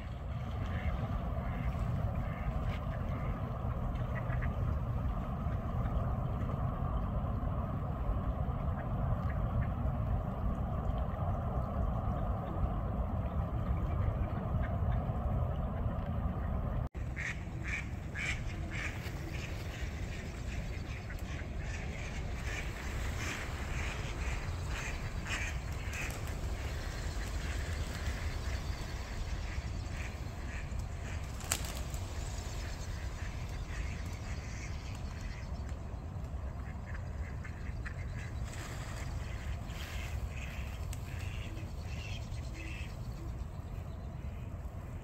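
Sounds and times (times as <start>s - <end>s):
steady low rumble: 0.0s - 45.0s
ducks quacking: 0.6s - 3.4s, 17.0s - 35.6s, 36.5s - 43.0s.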